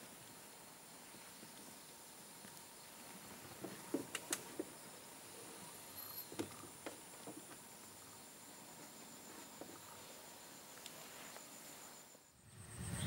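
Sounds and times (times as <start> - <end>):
faint steady high whine: 0.0 - 13.0
faint sharp cracks and knocks: 3.6 - 4.7.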